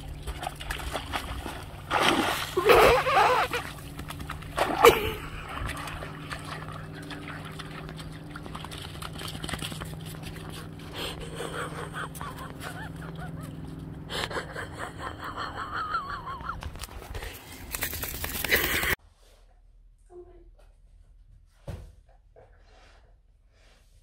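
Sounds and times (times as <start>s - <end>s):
dog splashing in shallow water: 0.0s - 11.0s.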